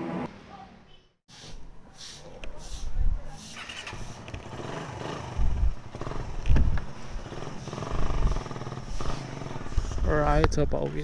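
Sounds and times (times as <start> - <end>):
motorcycle engine idling: 4.4 - 10.2.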